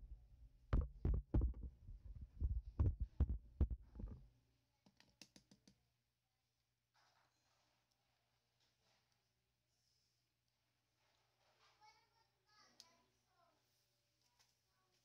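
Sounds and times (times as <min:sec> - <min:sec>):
sharp thumps of plastic pipe: 0:00.0 - 0:04.2.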